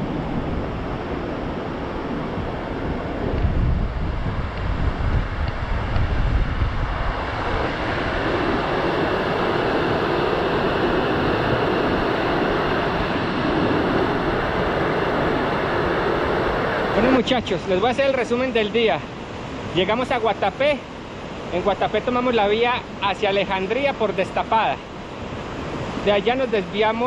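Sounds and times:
wind buffeting microphone: 0:00.0 - 0:18.3
steady rushing noise: 0:00.0 - 0:27.0.

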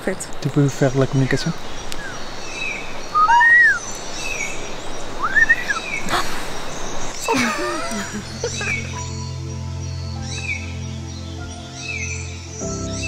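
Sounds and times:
bird chirps: 0:00.8 - 0:13.0
low falling bird call: 0:01.3 - 0:13.0
person whistling bird calls: 0:03.2 - 0:03.8, 0:05.2 - 0:06.0.

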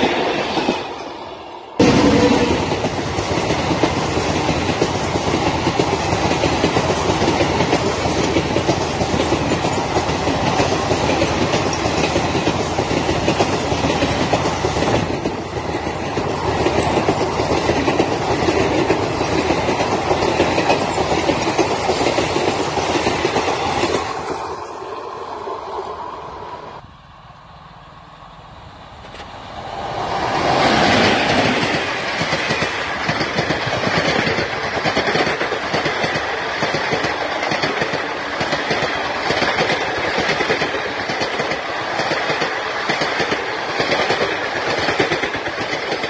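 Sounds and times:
train wheels clattering on rails: 0:00.0 - 0:01.2, 0:01.8 - 0:24.6, 0:30.4 - 0:46.0.

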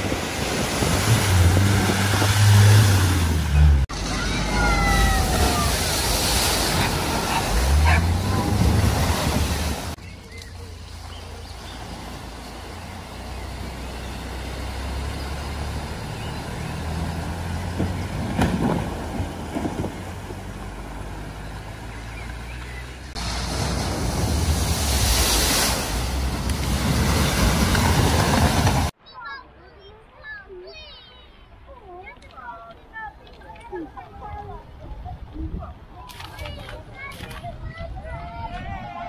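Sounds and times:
rush of spraying water: 0:00.0 - 0:28.9
water splashing around wheels: 0:00.0 - 0:29.0.

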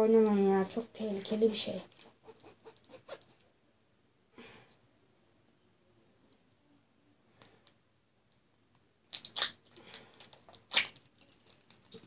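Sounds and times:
knife cutting plastic wrapper: 0:09.1 - 0:12.0
plastic crackling and scraping: 0:09.2 - 0:12.0.

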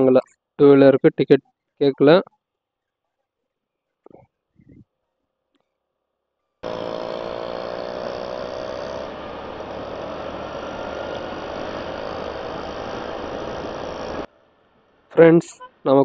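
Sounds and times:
motorbike engine running: 0:06.6 - 0:14.3.

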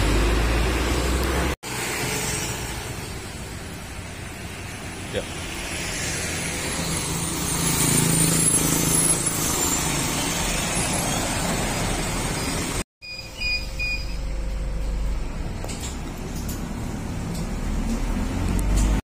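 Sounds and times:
short high beeps: 0:13.0 - 0:14.3
bus engine running: 0:13.8 - 0:19.0.

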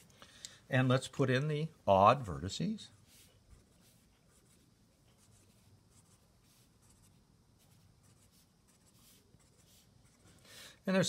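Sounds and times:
room hum: 0:00.0 - 0:11.0
marker scratching on paper: 0:02.9 - 0:10.4.

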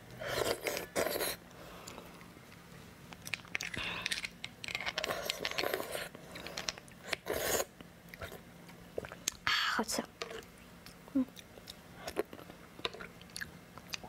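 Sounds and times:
wet chewing and eating: 0:00.2 - 0:09.4, 0:10.2 - 0:14.0.

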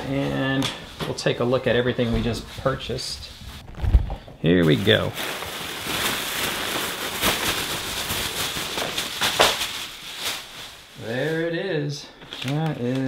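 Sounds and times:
plastic bag rustling: 0:01.3 - 0:11.6, 0:12.2 - 0:13.0.

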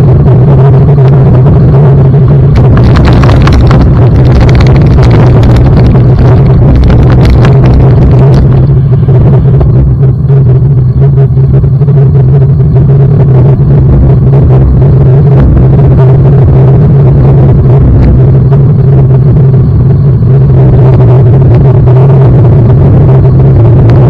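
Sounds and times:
road rumble: 0:00.0 - 0:24.0
wind buffeting: 0:00.0 - 0:24.0
rattles and knocks from rough surface: 0:02.5 - 0:09.7.

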